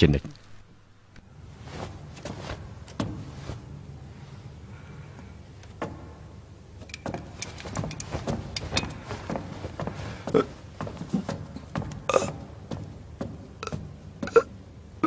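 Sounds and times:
low steady hum: 0:00.0 - 0:15.0
footsteps on wooden floor: 0:01.6 - 0:03.7, 0:05.8 - 0:14.4.

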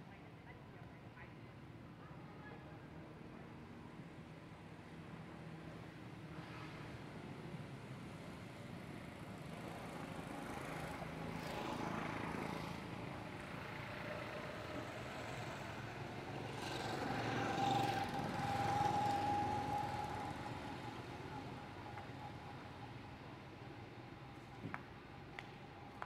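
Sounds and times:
motor vehicle passing with whine: 0:10.1 - 0:25.9.

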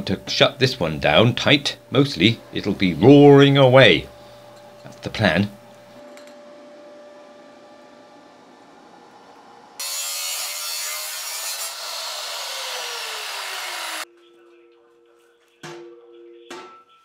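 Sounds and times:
faint steady hum: 0:00.0 - 0:10.3
chop saw cutting steel pipe: 0:09.8 - 0:14.0.

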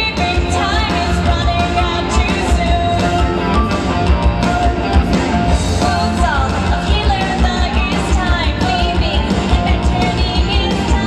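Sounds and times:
woman singing into microphone: 0:00.0 - 0:03.2, 0:05.8 - 0:11.0
rock backing with bass beat: 0:00.0 - 0:11.0.

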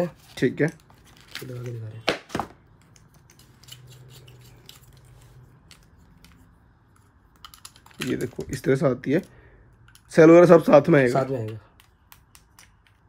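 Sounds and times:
small metallic clicks and scrapes: 0:02.8 - 0:08.5.

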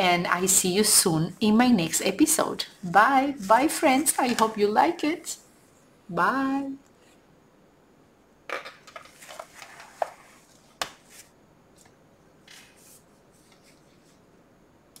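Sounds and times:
paper pages rustling: 0:03.4 - 0:04.8, 0:08.9 - 0:14.2.

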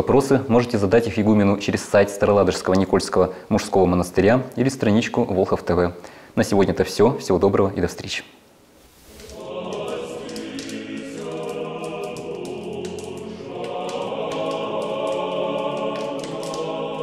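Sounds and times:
short crackles: 0:08.8 - 0:13.3
choir singing chant: 0:09.2 - 0:17.0.

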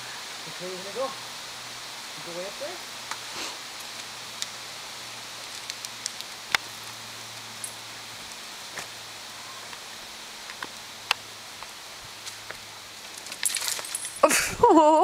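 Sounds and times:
faint steady hiss: 0:00.0 - 0:15.0
scrambling over loose rocks: 0:12.2 - 0:14.6.

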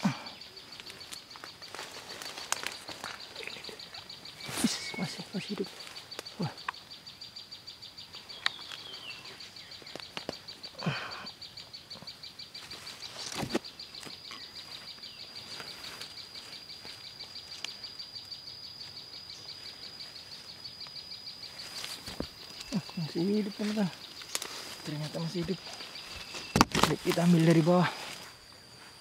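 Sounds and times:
footsteps through undergrowth: 0:00.7 - 0:06.5, 0:12.6 - 0:17.8, 0:21.4 - 0:29.0.

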